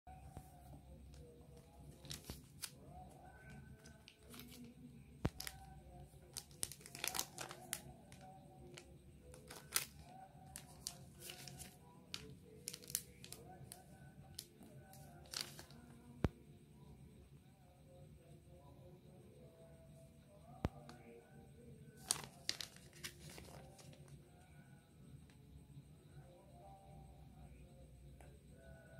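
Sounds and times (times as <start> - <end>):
plastic packets crinkling: 1.6 - 2.8, 3.5 - 4.7, 5.3 - 13.5, 14.3 - 15.8, 22.0 - 24.1.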